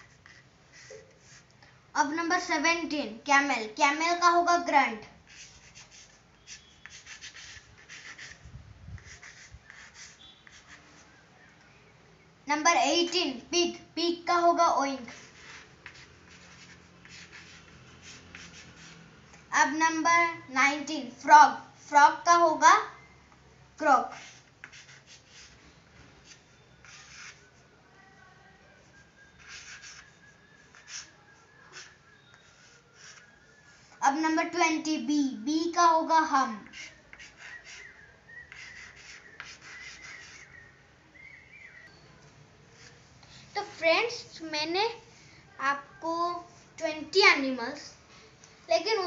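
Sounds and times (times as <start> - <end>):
chalk scratching on chalkboard: 0.0 - 1.5, 4.5 - 11.2, 14.7 - 19.5, 23.8 - 27.6, 28.9 - 34.6, 36.2 - 40.6, 42.8 - 44.2.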